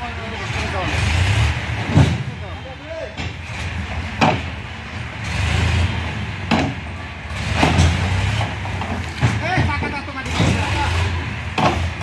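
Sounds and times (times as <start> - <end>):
tractor engine rumbling: 0.0 - 12.0
sharp knocks: 4.2 - 4.5, 6.4 - 6.8, 7.5 - 10.7, 11.5 - 12.0.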